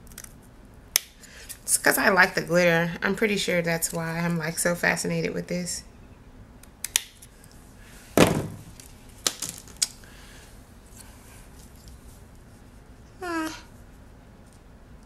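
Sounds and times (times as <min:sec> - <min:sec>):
dull thump: 0:08.2 - 0:08.7
person humming: 0:13.2 - 0:13.7.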